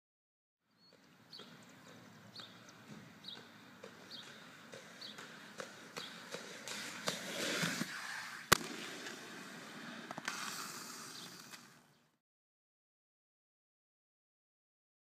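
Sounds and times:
skateboard wheels clacking on pavement: 0.9s - 11.8s
skateboard smack: 3.8s - 11.8s.

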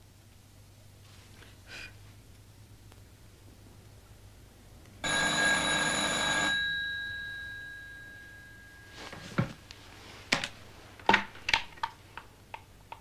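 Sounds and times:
telephone bell ringing: 5.0s - 9.3s.

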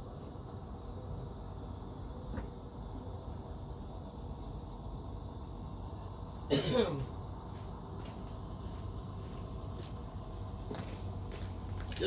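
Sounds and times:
man coughing: 6.5s - 7.1s.

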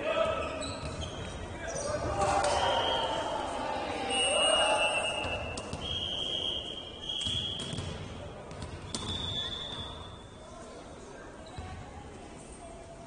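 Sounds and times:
ball thumping on indoor court: 7.1s - 10.0s.

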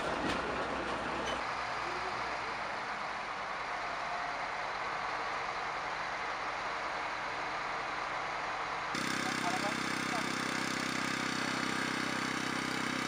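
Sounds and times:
heavy vehicle engines idling: 0.0s - 13.0s.

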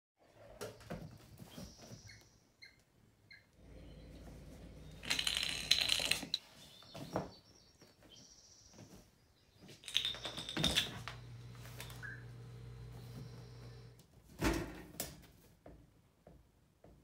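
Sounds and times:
rustling and scratching: 0.4s - 2.2s, 3.7s - 7.4s.

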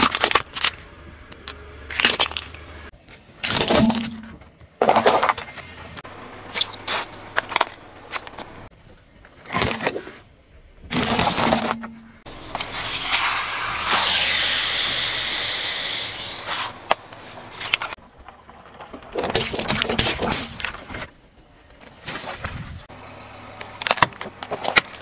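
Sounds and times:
plastic cracking under car tyre: 0.0s - 2.6s
rushing spraying noise: 12.3s - 17.8s.

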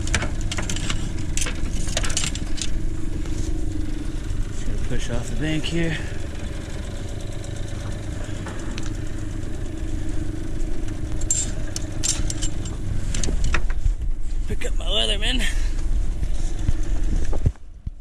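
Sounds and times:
light clicks and rattles: 0.0s - 3.3s, 10.8s - 13.9s
outboard motor idling: 0.0s - 14.5s, 15.2s - 17.4s.

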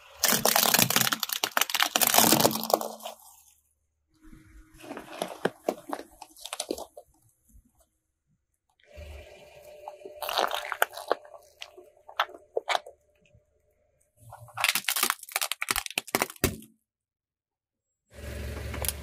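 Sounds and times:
tyre crushing small objects: 0.0s - 3.5s, 4.8s - 7.2s, 10.2s - 13.0s, 14.3s - 16.7s.

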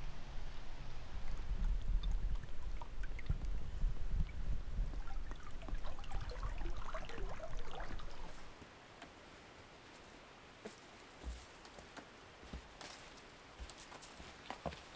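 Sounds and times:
low rumble: 0.0s - 8.5s
water lapping and trickling: 0.4s - 9.5s
water drips and gurgles: 1.0s - 8.6s.

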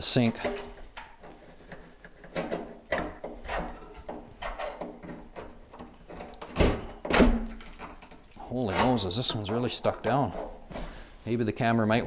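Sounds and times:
metal sink clanking: 2.4s - 10.7s
steel bar knocking and scraping metal: 7.6s - 10.6s.

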